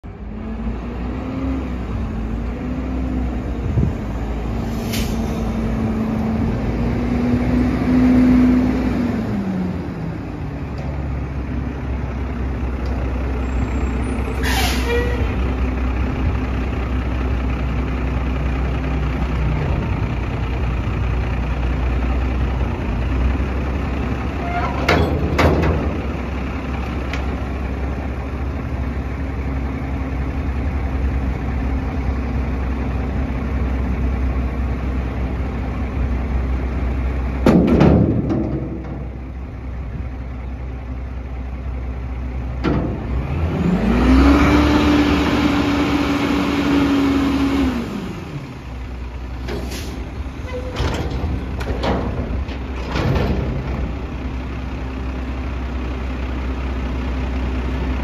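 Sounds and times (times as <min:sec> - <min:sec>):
garbage truck engine running: 0:00.0 - 0:58.0
engine revving: 0:04.3 - 0:09.9, 0:42.9 - 0:48.6
dumpster metal clang: 0:24.3 - 0:27.0, 0:37.4 - 0:39.5, 0:42.6 - 0:43.3, 0:49.3 - 0:54.5.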